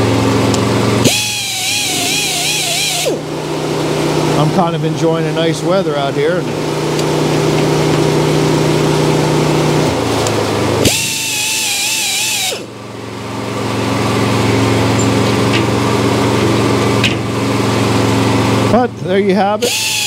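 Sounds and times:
grinder running on saw teeth: 0.5s - 3.4s, 10.8s - 12.7s, 17.7s - 20.0s
wavering grinding: 1.0s - 4.6s.

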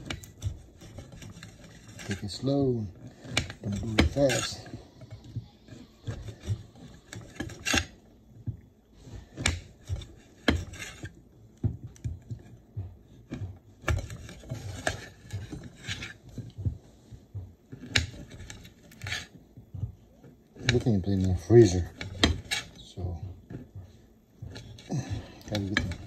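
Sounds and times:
light scraping: 0.0s - 8.1s, 13.2s - 19.4s, 20.2s - 26.0s.

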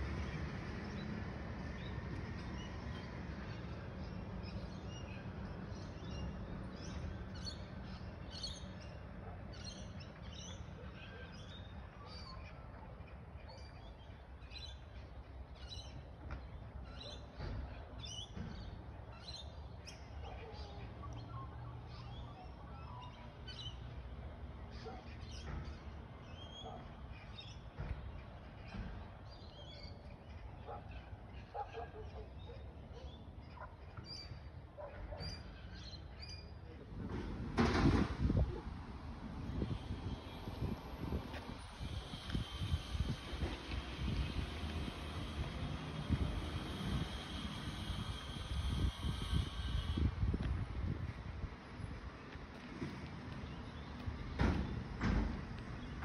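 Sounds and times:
garbage truck engine rumble: 36.8s - 56.0s.

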